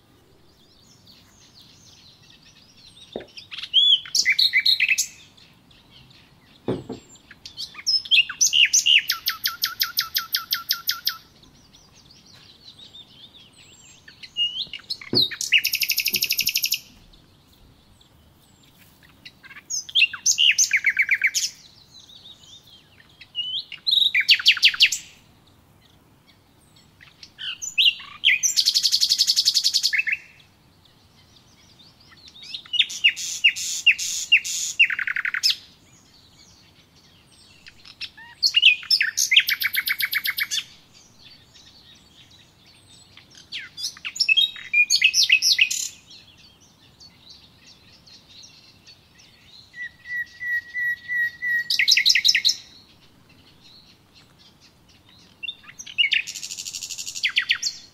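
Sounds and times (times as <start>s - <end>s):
songbird trilling: 0.6s - 25.2s, 26.8s - 30.5s, 31.2s - 57.9s
dull low knocks: 6.7s - 7.2s, 15.1s - 15.4s.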